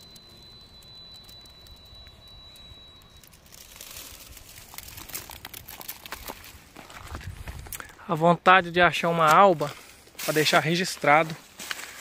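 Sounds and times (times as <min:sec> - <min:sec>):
thin steady high tone: 0:00.0 - 0:06.8
footsteps on dry vegetation: 0:03.5 - 0:08.3, 0:08.9 - 0:12.0.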